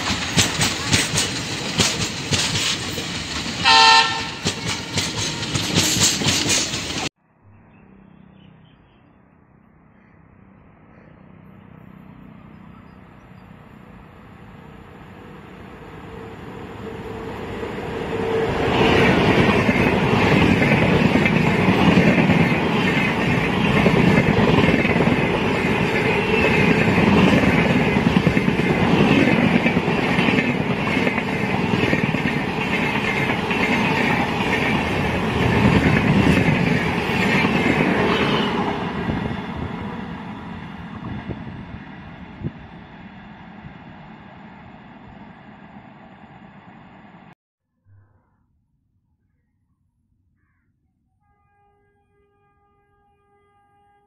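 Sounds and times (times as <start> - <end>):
coach wheels clattering on track: 0.0 - 7.1
locomotive rushing past: 0.0 - 7.1, 12.0 - 47.4
train rumble with steady tone: 0.0 - 7.2, 12.3 - 47.4.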